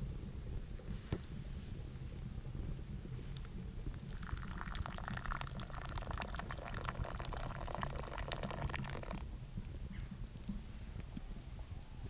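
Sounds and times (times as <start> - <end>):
tea pouring into wooden cup: 3.3 - 9.2.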